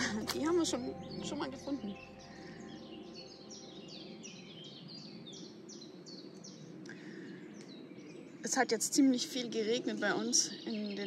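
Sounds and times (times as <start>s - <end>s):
songbird singing descending notes: 0.0s - 8.5s.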